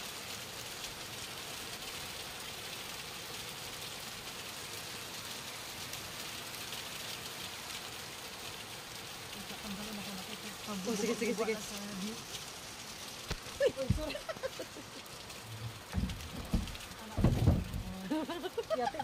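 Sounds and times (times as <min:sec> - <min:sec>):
heavy rain hissing: 0:00.0 - 0:19.0
rain pattering on glass and wood: 0:00.0 - 0:19.0.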